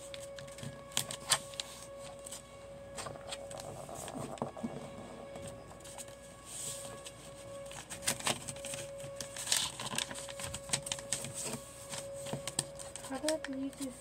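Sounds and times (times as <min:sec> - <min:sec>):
paper being folded and creased: 0:00.0 - 0:14.0.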